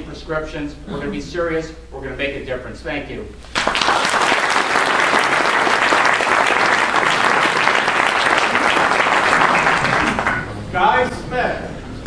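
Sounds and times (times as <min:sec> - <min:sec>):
audience applauding: 0:03.5 - 0:10.5.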